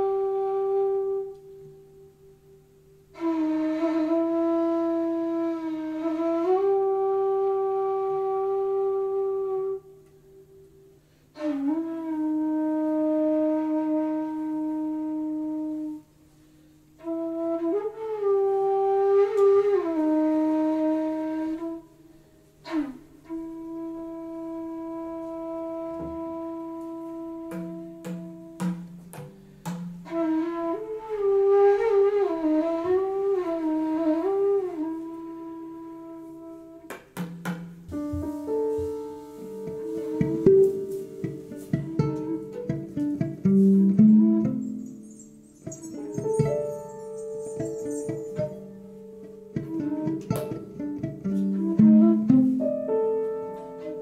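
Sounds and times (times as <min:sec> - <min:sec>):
flute playing long notes: 0:00.0 - 0:37.0, 0:37.9 - 0:54.0
sharp percussive taps: 0:27.5 - 0:30.1, 0:36.9 - 0:38.2.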